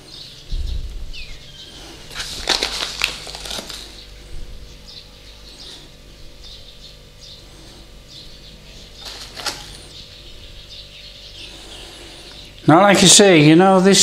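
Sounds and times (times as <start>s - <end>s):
quick rustling clicks: 2.1s - 3.9s.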